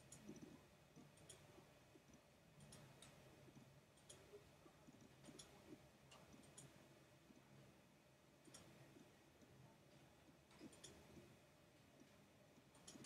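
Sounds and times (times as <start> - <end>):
computer mouse clicks: 0.0 - 6.8, 8.4 - 9.5, 10.5 - 11.3, 12.0 - 13.0
faint low hum: 0.0 - 13.0.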